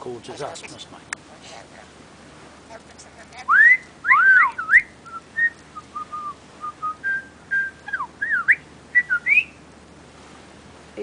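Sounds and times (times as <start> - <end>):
parrot whistling and chattering: 3.3 - 9.6.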